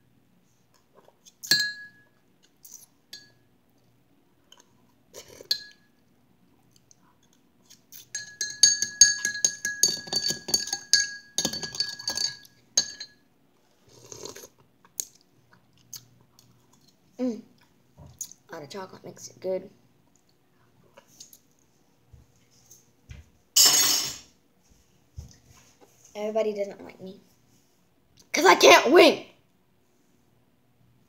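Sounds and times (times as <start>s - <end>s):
spoon clinking glass bowl: 1.4s - 2.1s, 3.1s - 3.4s, 5.5s - 5.9s, 8.0s - 13.2s.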